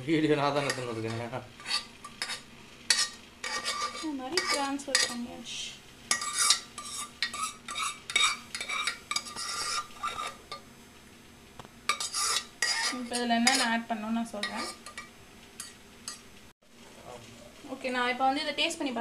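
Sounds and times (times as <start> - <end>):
metal ladle scraping cookware: 0.6 - 5.2, 6.1 - 10.5, 11.9 - 13.8, 14.4 - 16.2.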